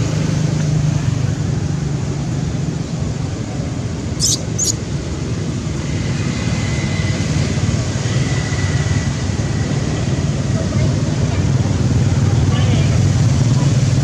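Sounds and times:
road traffic rumble: 0:00.0 - 0:14.0
high-pitched squeaks: 0:04.2 - 0:04.8.

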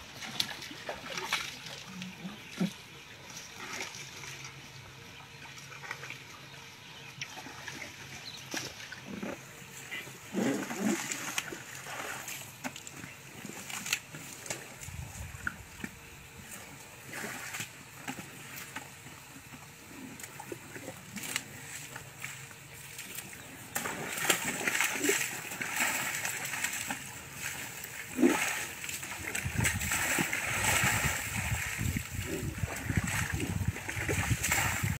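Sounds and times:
elephant splashing in water: 0:07.4 - 0:12.7, 0:20.2 - 0:34.9.

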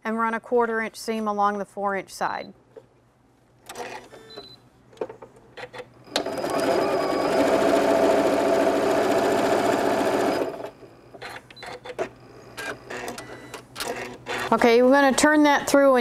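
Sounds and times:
sewing machine stitching: 0:05.7 - 0:10.8.

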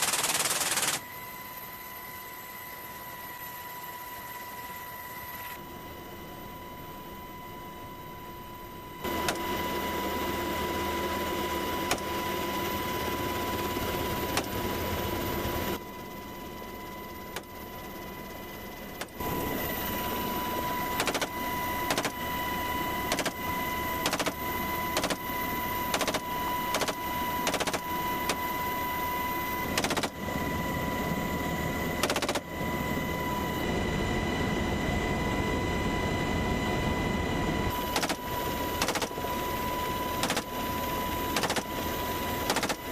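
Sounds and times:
helicopter cabin whine: 0:00.0 - 0:42.9
rifle shots: 0:38.8 - 0:39.2, 0:40.2 - 0:40.5, 0:41.3 - 0:41.7, 0:42.5 - 0:42.9.

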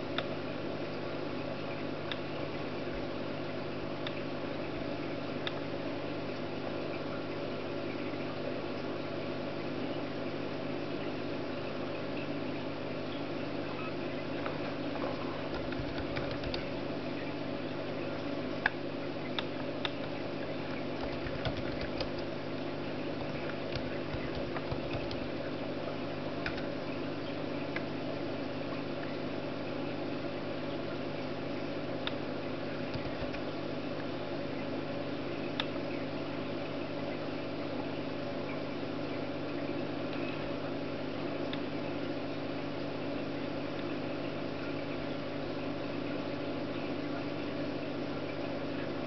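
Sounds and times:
steady hum: 0:00.0 - 0:49.0
keyboard typing clicks: 0:15.5 - 0:16.7, 0:21.0 - 0:22.3, 0:23.2 - 0:25.3, 0:26.4 - 0:26.7, 0:32.9 - 0:33.4.

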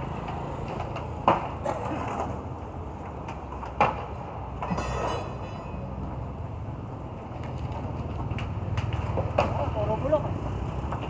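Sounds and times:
street rumble: 0:00.0 - 0:11.0
debris rattle: 0:04.6 - 0:05.9.

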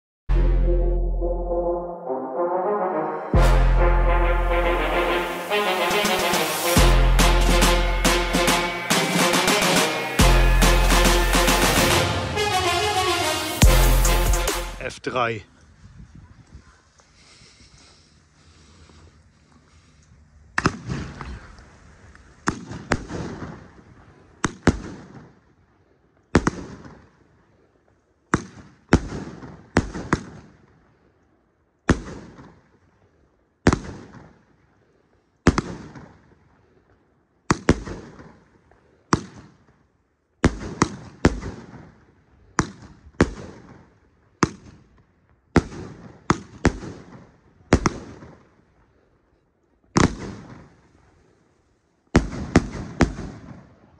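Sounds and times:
firework battery sharp bangs: 0:04.6 - 0:14.8.

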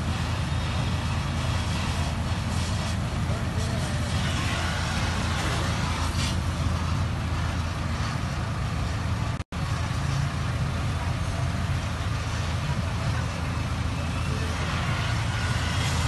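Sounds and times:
gas torch flame hissing: 0:00.0 - 0:08.3, 0:11.0 - 0:16.0
steady low rumble: 0:00.0 - 0:16.0.

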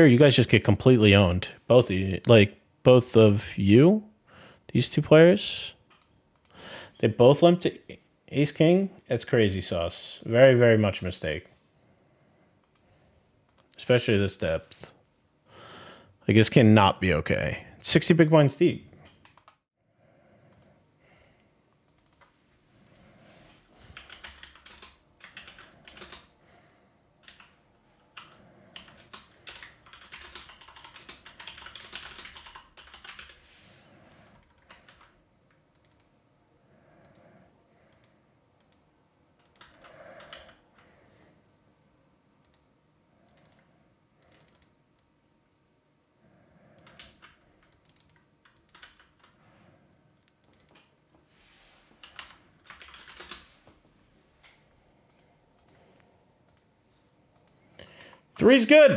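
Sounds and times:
typing on computer keyboard: 0:21.9 - 0:22.3, 0:23.8 - 0:26.3, 0:27.2 - 0:33.4, 0:34.1 - 0:36.1, 0:39.4 - 0:40.8, 0:43.3 - 0:45.1, 0:46.8 - 0:49.4, 0:50.2 - 0:50.9, 0:52.0 - 0:53.5.

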